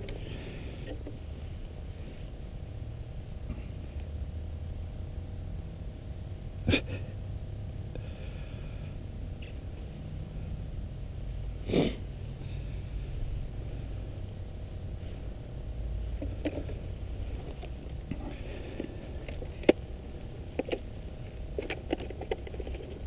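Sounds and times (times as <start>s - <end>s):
steady low rumble: 0.0s - 23.0s
person sniffing: 11.6s - 12.9s.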